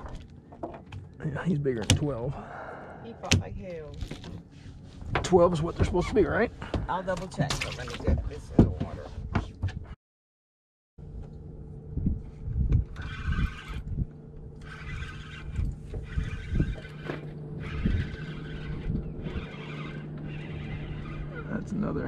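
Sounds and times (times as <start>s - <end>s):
low mechanical hum: 11.0s - 22.0s.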